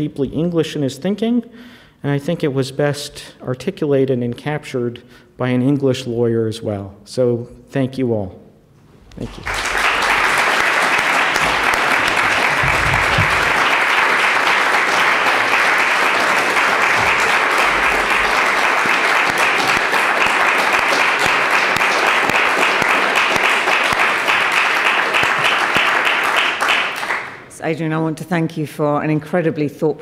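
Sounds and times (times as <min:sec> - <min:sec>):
audience applauding: 0:09.1 - 0:27.5.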